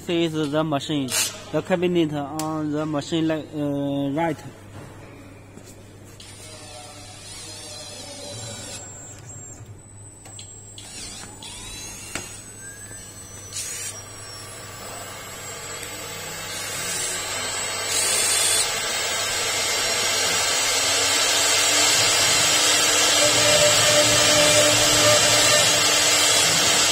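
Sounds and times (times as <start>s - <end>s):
router spindle whine: 10.3s - 26.9s.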